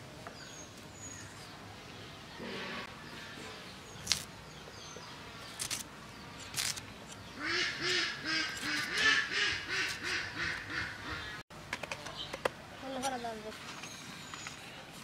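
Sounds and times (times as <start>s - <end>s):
radish snapping as cut: 4.0s - 4.3s, 5.5s - 7.2s
duck quacking: 7.4s - 11.4s.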